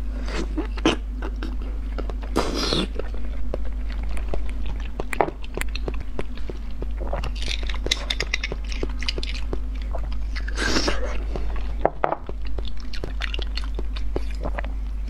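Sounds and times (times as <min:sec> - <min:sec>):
steady low hum: 0:00.0 - 0:15.0
wet mouth clicks and slurps: 0:01.4 - 0:14.8.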